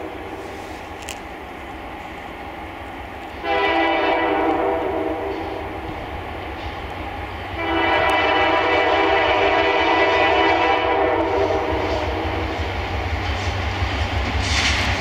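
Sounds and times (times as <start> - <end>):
diesel locomotive engine rumble: 0.0 - 15.0
locomotive horn blast: 3.4 - 5.7, 7.6 - 12.4.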